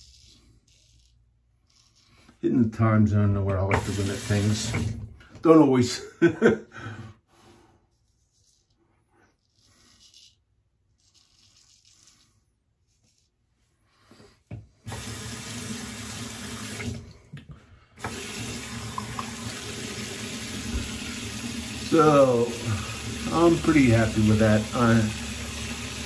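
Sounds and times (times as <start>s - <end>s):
straight razor on stubble: 0.0s - 2.4s, 8.0s - 13.4s
tap running into sink: 3.5s - 5.0s, 18.0s - 22.0s.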